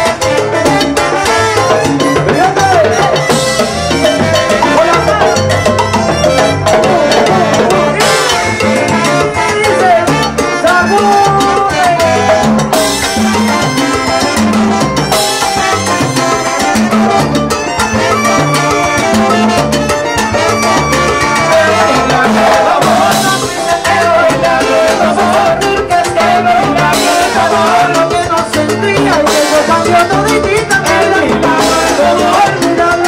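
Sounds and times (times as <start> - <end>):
salsa band playing: 0.0 - 33.0
lead singer singing: 20.4 - 33.0.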